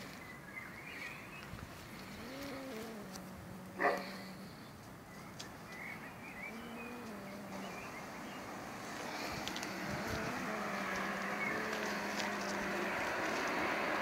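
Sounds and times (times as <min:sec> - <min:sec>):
animal whining calls: 0:02.0 - 0:04.8, 0:06.3 - 0:08.0, 0:09.1 - 0:13.1.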